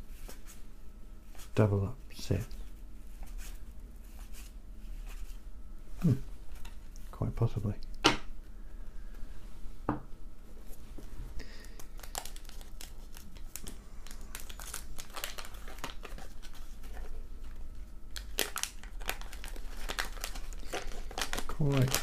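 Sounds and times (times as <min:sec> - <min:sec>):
paper wrapper crinkling and tearing: 0:11.6 - 0:22.0.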